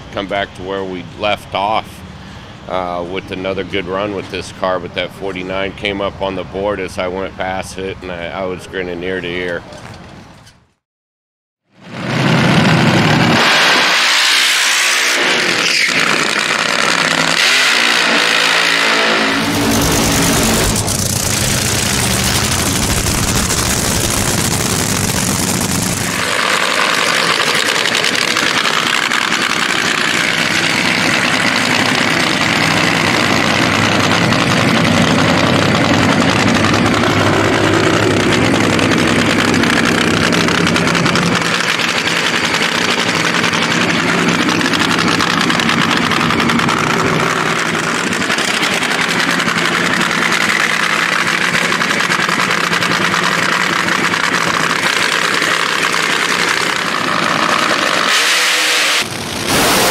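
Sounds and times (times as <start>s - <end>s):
drag racing engines revving: 11.9s - 59.9s
funny car engine idling: 16.0s - 17.4s, 19.4s - 58.1s.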